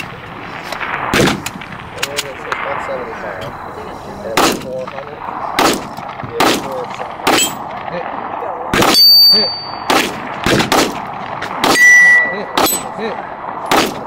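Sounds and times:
rifle shots: 0:00.0 - 0:14.0
high ringing tone: 0:09.0 - 0:09.9, 0:11.7 - 0:12.9.

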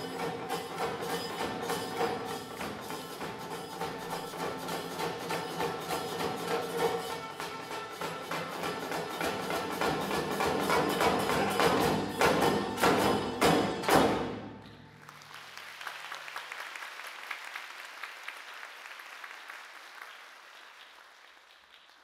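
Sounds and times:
taiko drum strikes: 0:09.6 - 0:14.6
audience applause: 0:14.8 - 0:22.0.

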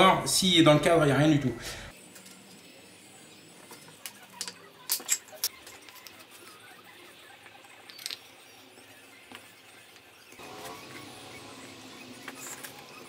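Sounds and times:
wooden pieces tapping together: 0:04.0 - 0:06.2, 0:07.8 - 0:08.3.

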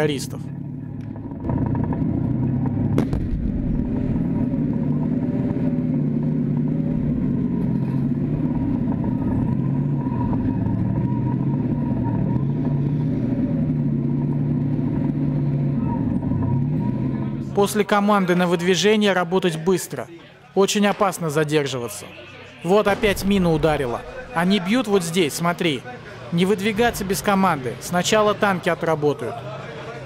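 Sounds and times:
tank diesel engine running: 0:00.0 - 0:17.9
sharp crack: 0:02.9 - 0:04.2.

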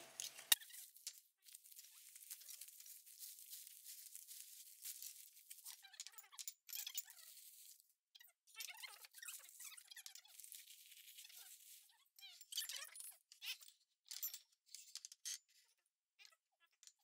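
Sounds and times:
packaging crinkling and tearing: 0:00.2 - 0:05.6.

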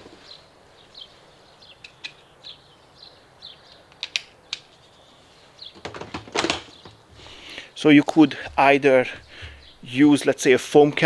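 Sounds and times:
adapter clicking against plastic: 0:03.9 - 0:04.7.

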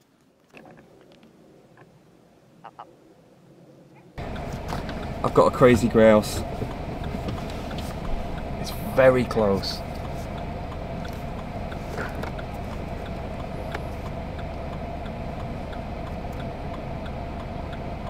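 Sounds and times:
car engine idling: 0:04.2 - 0:18.0
faint even ticking: 0:04.2 - 0:18.0.

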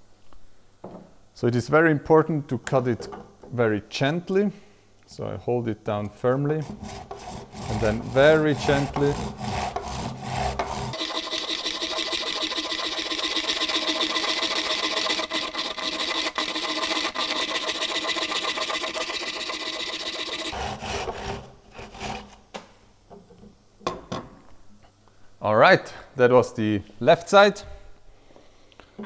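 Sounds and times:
hand saw cutting: 0:06.6 - 0:22.4.

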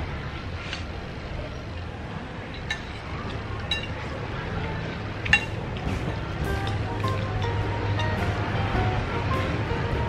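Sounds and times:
cutlery clinking on ceramic plates: 0:02.6 - 0:04.0, 0:05.2 - 0:05.6.

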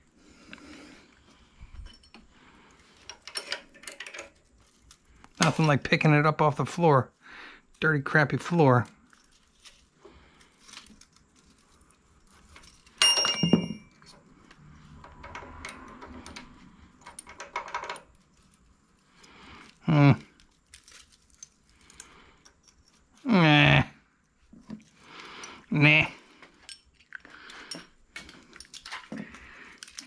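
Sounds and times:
small clicks and rattles of tools: 0:01.7 - 0:05.8, 0:10.4 - 0:23.2, 0:26.4 - 0:30.0
metallic clink: 0:12.6 - 0:14.2
person grunting: 0:19.8 - 0:20.3, 0:23.2 - 0:23.9, 0:25.7 - 0:26.2.

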